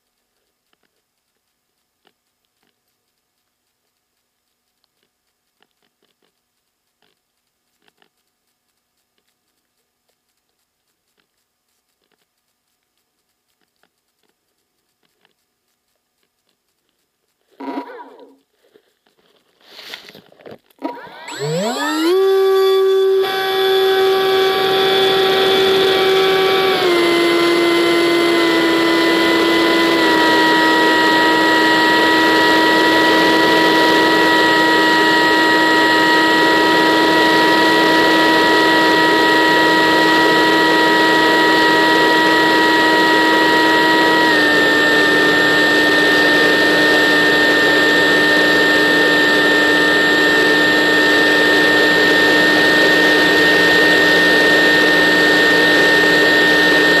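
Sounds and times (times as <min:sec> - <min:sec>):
electric motor and propeller whine: 0:20.8 - 0:57.0.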